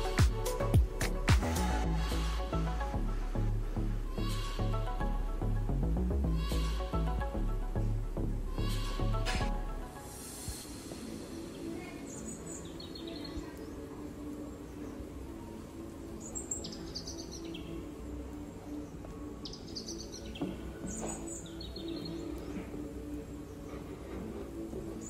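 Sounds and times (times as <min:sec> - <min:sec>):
soft background music: 0:00.0 - 0:25.0
high bird-like chirps: 0:11.4 - 0:13.8.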